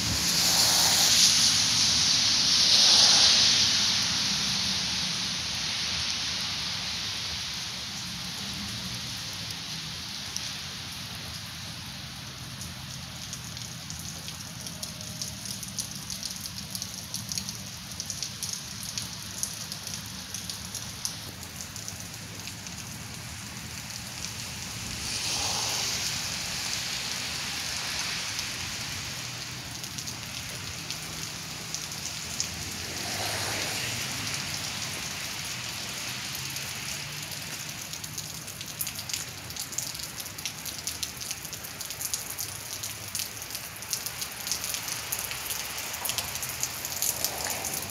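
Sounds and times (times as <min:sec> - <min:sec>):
rushing noise: 0:00.0 - 0:07.2, 0:24.2 - 0:29.6, 0:32.4 - 0:35.4, 0:45.8 - 0:47.9.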